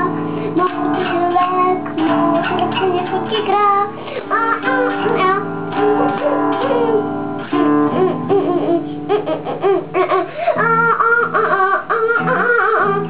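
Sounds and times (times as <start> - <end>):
electric guitar strummed chords: 0.0 - 11.4
child wordless vocalizing: 2.4 - 7.1, 9.8 - 13.0.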